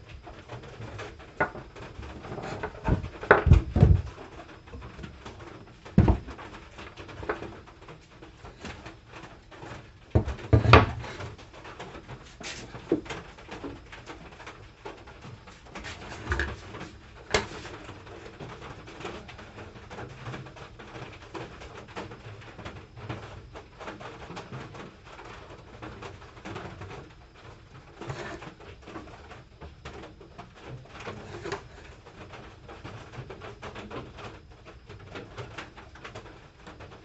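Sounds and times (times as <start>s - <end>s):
wood and metal knocking on bench: 1.4s - 4.8s, 6.0s - 6.4s, 10.2s - 11.2s, 31.2s - 31.8s.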